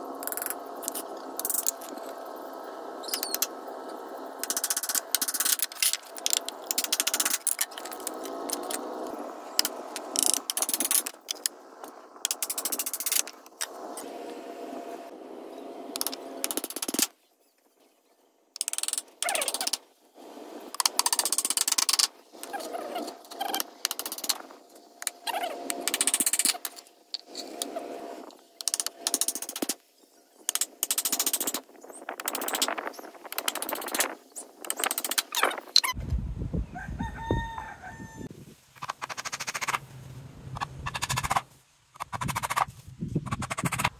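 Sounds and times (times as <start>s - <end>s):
rooster crowing: 36.6s - 38.3s.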